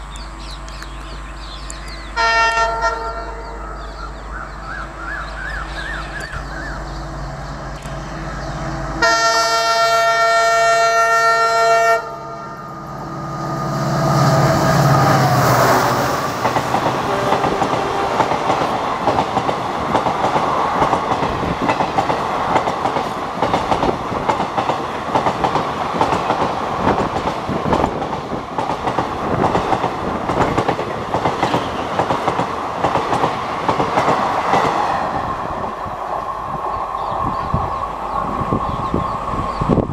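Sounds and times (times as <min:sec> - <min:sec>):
diesel locomotive engine: 0:00.0 - 0:39.9
train horn: 0:02.2 - 0:03.8, 0:06.6 - 0:16.0, 0:16.8 - 0:18.9
wheels clattering on rails: 0:15.1 - 0:35.0.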